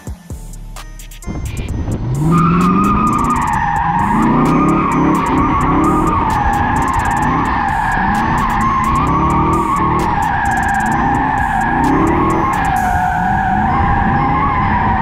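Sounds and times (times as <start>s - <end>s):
car engine revving: 1.0s - 15.0s
tyres squealing: 2.0s - 15.0s.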